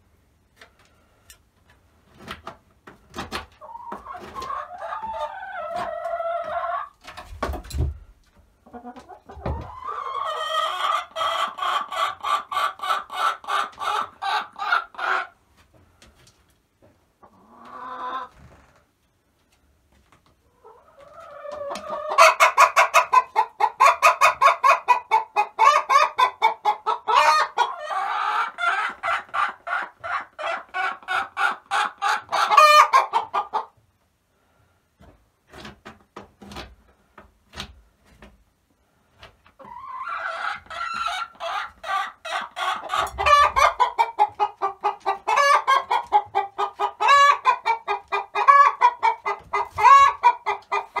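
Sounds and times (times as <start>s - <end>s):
hen cackling: 20.6s - 33.7s, 39.6s - 51.0s.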